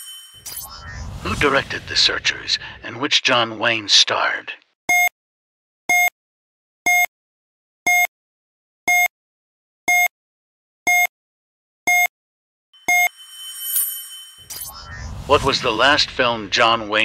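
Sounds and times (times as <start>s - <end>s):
bright ringing chime: 0.0s - 0.8s, 12.8s - 15.3s
short electronic beeps: 4.9s - 5.1s, 5.9s - 6.1s, 6.9s - 7.1s, 7.9s - 8.1s, 8.9s - 9.1s, 9.9s - 10.1s, 10.9s - 11.1s, 11.9s - 12.1s, 12.8s - 15.3s.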